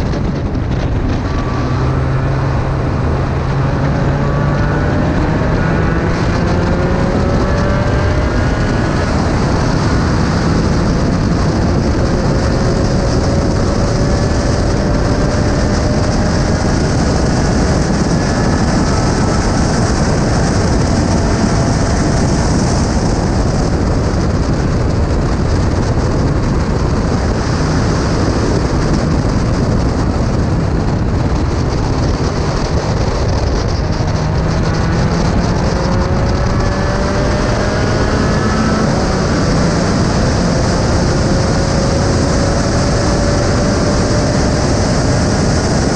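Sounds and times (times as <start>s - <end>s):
race car engine accelerating: 0.0s - 45.9s
wind noise on microphone: 0.0s - 45.9s.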